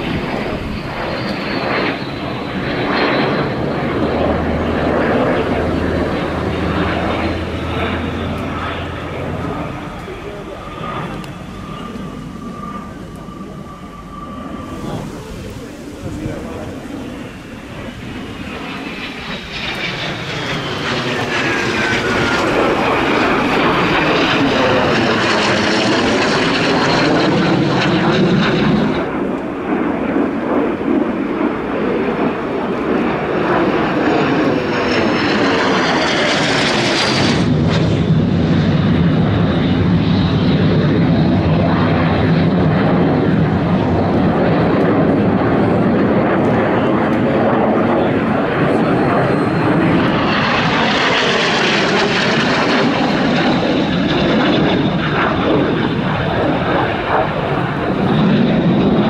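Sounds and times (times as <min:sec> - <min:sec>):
jet aircraft flying past: 0:00.0 - 0:59.0
steady jet rumble: 0:00.0 - 0:59.0.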